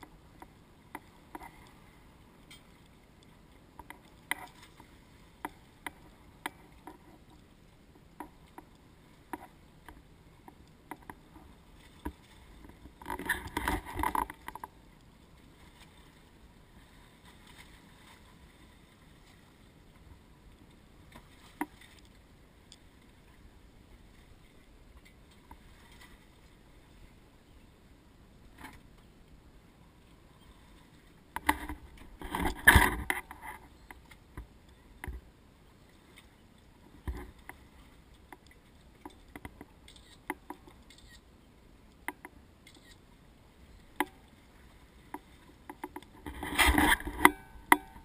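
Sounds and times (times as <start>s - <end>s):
water and hull noise: 0.0s - 48.0s
small knocks and clicks: 8.1s - 14.7s, 31.3s - 35.2s, 38.3s - 41.2s, 42.0s - 43.0s, 45.1s - 48.0s.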